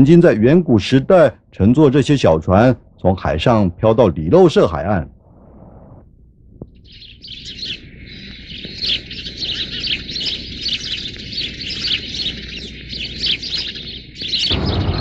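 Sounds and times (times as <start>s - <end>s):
small birds chirping: 0.0s - 15.0s
dull background rumble: 4.8s - 13.2s.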